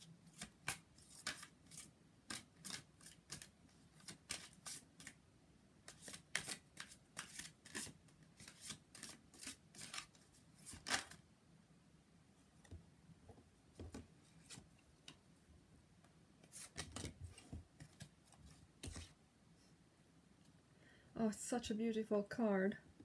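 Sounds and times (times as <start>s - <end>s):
cards being shuffled by hand: 0.3s - 5.2s, 5.9s - 11.2s, 16.4s - 19.2s.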